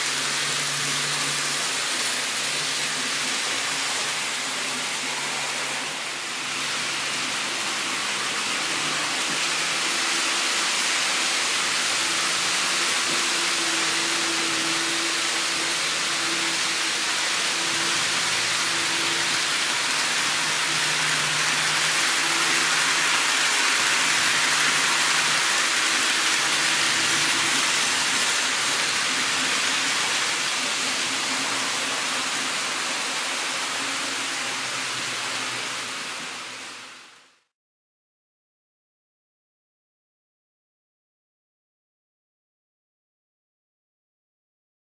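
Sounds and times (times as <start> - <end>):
model train wheels on rail: 0.0 - 37.2.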